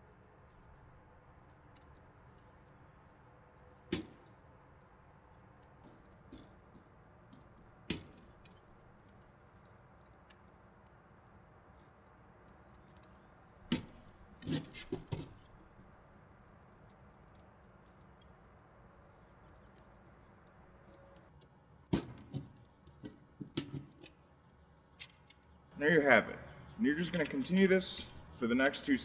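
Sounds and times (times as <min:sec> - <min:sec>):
metal rods clicking into clips: 0:26.9 - 0:29.0.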